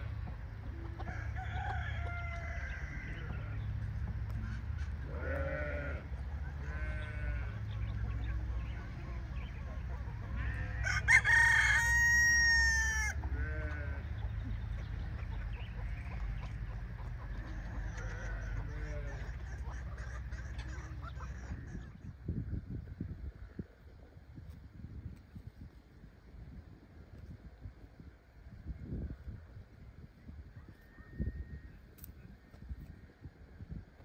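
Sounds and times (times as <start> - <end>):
chickens clucking: 0.0 - 34.0
rooster crowing: 1.0 - 3.3, 10.6 - 13.2, 30.6 - 31.7.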